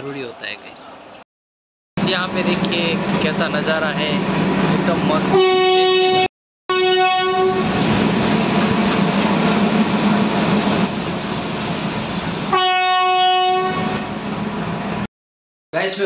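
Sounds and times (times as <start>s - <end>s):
train rumbling on tracks: 2.0s - 15.1s
train horn blast: 5.2s - 7.8s, 12.5s - 14.2s.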